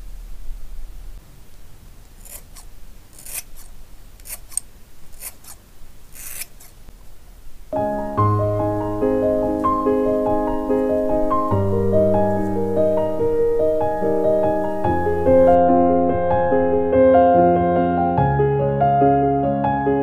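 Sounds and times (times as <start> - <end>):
piano music: 7.7 - 20.0.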